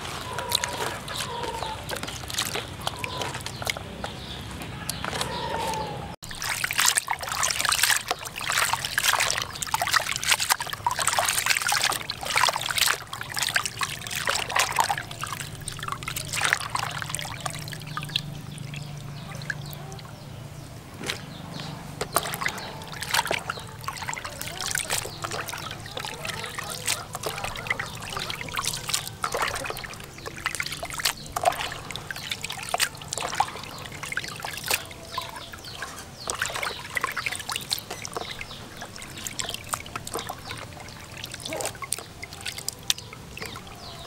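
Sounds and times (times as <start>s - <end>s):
water sloshing in plastic basin: 0.0s - 44.0s.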